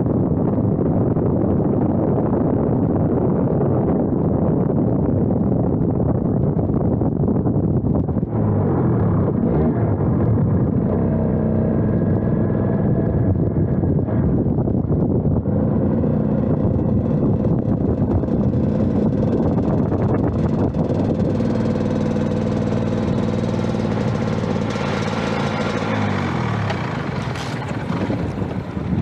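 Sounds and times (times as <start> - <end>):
wind noise on microphone: 0.0 - 29.0
motorcycle engine running: 5.3 - 29.0.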